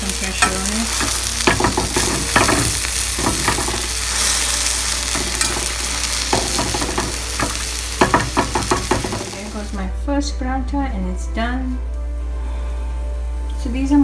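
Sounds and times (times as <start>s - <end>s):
oil sizzling in a pan: 0.0s - 9.9s
metal spatula scraping and tapping: 0.4s - 4.3s, 5.1s - 9.4s.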